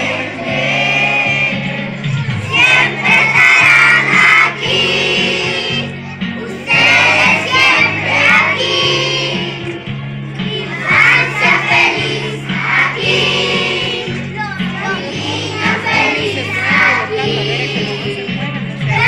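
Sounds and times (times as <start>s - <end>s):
children singing together: 0.0s - 9.8s, 10.4s - 19.0s
musical accompaniment: 0.0s - 19.0s.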